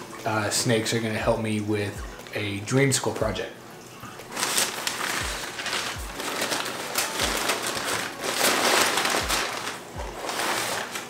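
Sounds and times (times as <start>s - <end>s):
paper crinkling and rustling: 4.2s - 11.0s.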